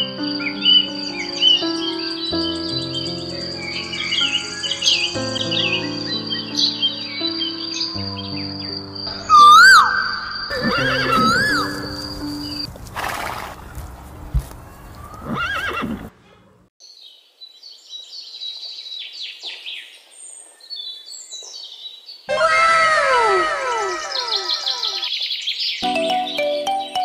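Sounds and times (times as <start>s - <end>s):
background music: 0.0s - 12.7s, 25.8s - 27.0s
horse neighing: 10.5s - 12.0s, 15.1s - 16.1s, 22.3s - 25.1s
faint bird chirps: 14.6s - 25.8s.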